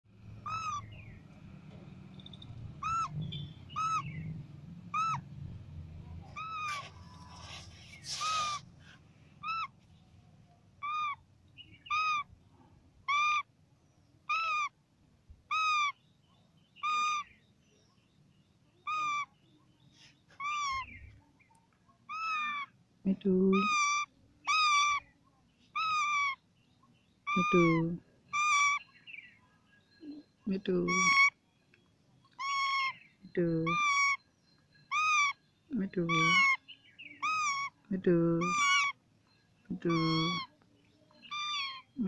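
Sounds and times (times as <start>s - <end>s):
parakeet calling: 0.2s - 1.2s, 2.2s - 5.4s, 6.2s - 8.8s, 9.4s - 9.8s, 10.8s - 12.4s, 13.0s - 13.5s, 14.2s - 14.8s, 15.5s - 16.0s, 16.8s - 17.4s, 18.8s - 19.4s, 20.4s - 21.1s, 22.1s - 22.8s, 23.4s - 25.1s, 25.7s - 26.5s, 27.2s - 29.3s, 30.0s - 31.5s, 32.2s - 40.6s, 41.2s - 42.0s.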